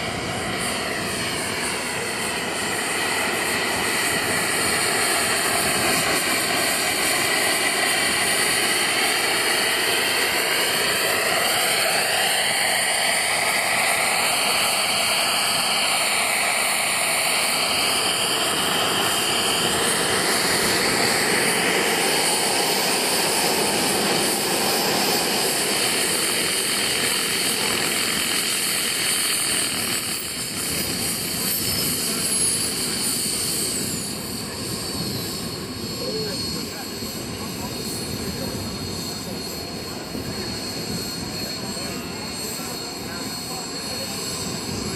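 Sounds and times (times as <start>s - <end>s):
model helicopter jet whine: 0.0s - 44.9s.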